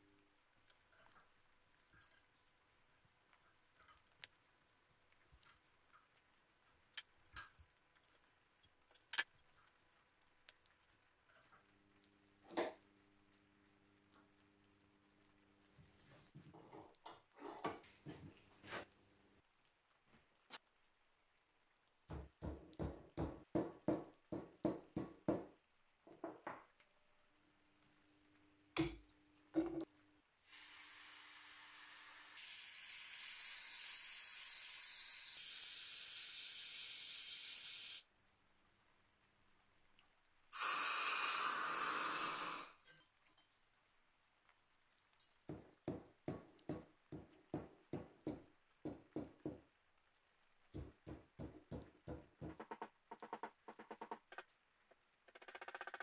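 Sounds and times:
gas torch hissing: 30.5s - 38.0s, 40.6s - 42.8s.

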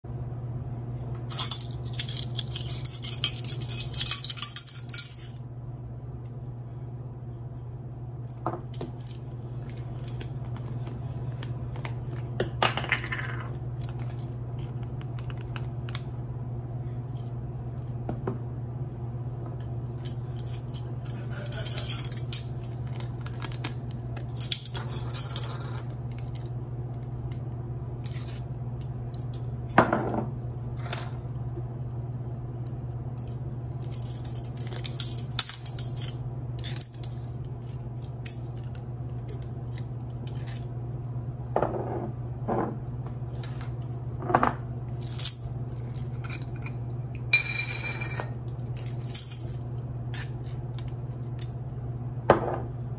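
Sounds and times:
steady low hum: 0.0s - 52.9s
metal spoons jangling: 1.3s - 5.4s, 20.0s - 23.0s, 33.2s - 38.8s, 47.3s - 49.6s.

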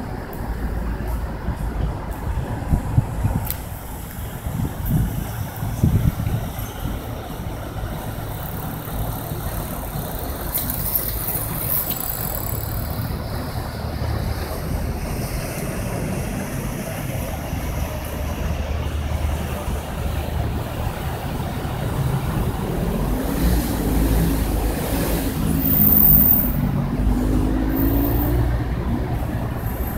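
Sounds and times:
boat engine rumble: 0.0s - 29.9s.

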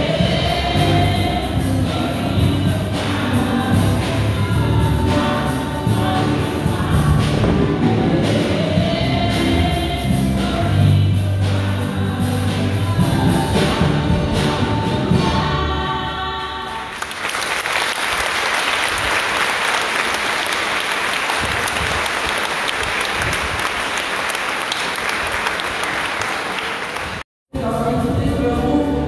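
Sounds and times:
choir singing: 0.0s - 17.0s
audience applauding: 16.9s - 27.2s.

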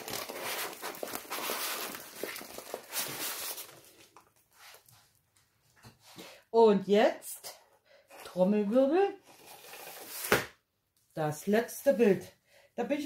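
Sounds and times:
plastic film and paper rustling: 0.0s - 5.2s.

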